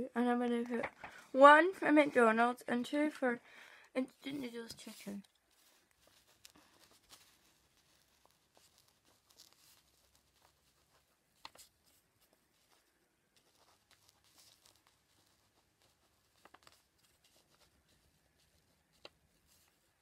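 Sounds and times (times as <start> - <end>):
pen scratching on paper: 4.1 - 20.0.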